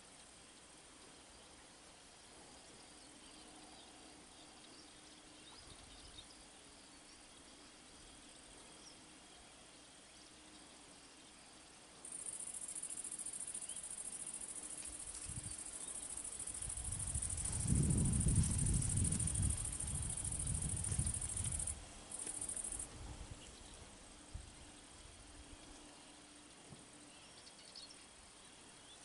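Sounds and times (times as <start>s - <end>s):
insect buzzing: 12.0s - 23.0s.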